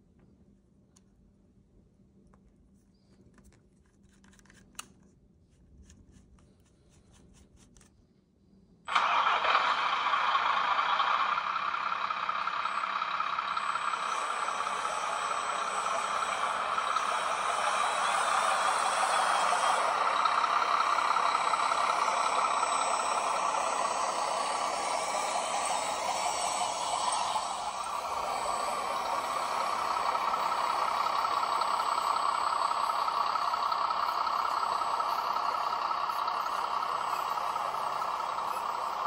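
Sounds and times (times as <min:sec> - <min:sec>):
diesel truck engine running: 0:08.9 - 0:39.0.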